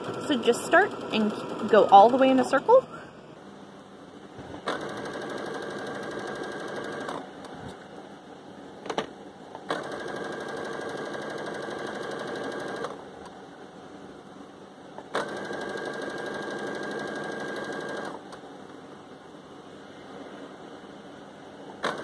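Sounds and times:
sewing machine stitching: 4.6s - 7.2s, 9.7s - 13.0s, 15.1s - 18.2s, 21.8s - 22.0s.

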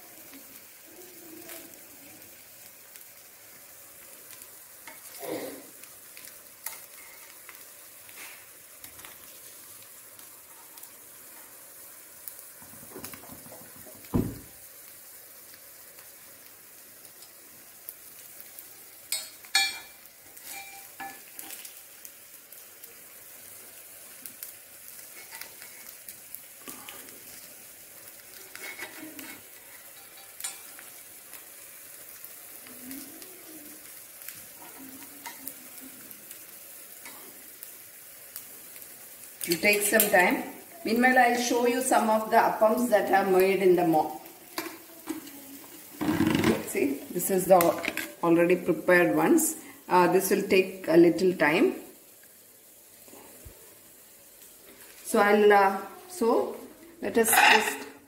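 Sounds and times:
batter sizzling in oil: 0.0s - 58.0s
steel spoon scraping pan: 6.6s - 7.4s, 19.1s - 21.2s, 28.5s - 30.8s, 57.2s - 58.0s.

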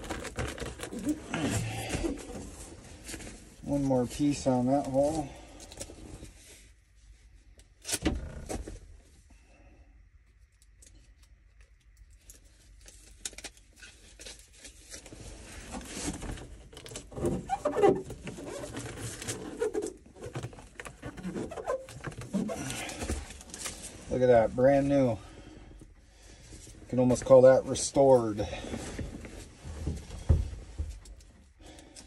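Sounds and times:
foil tape crinkling and rubbing: 0.0s - 2.2s, 12.2s - 24.0s.

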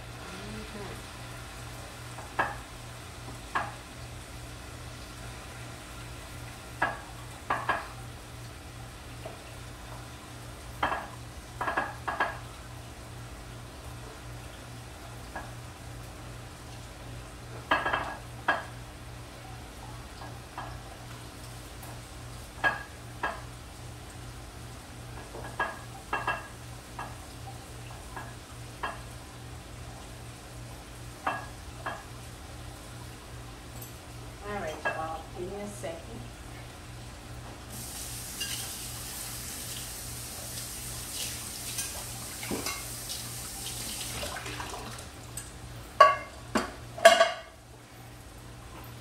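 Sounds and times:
potatoes sizzling in skillet: 37.7s - 44.2s.

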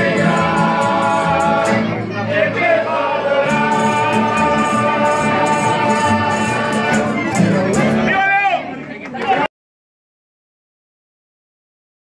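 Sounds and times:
men singing in chorus: 0.0s - 7.3s
accordion: 0.0s - 8.1s
strummed and plucked strings: 0.0s - 8.3s.

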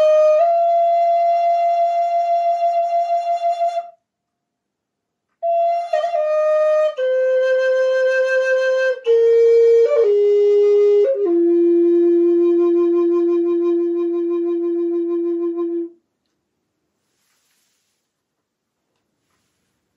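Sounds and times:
flute playing slow notes: 0.0s - 4.0s, 5.4s - 16.0s.

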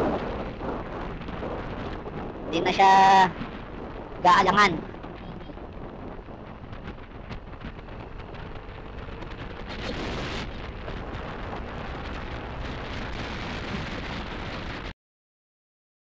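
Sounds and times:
wind rushing over microphone: 0.0s - 14.9s
wet road noise: 4.8s - 14.9s.

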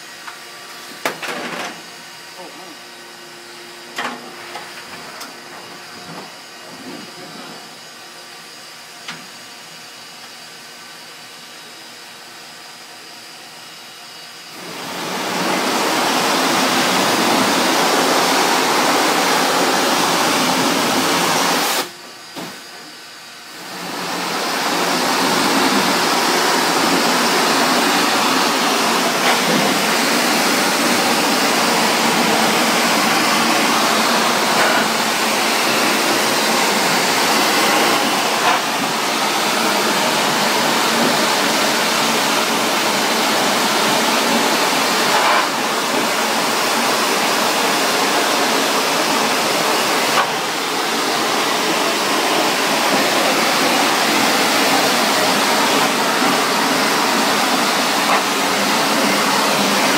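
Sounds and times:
pressure washer spray hissing: 14.8s - 21.9s, 23.7s - 41.8s.

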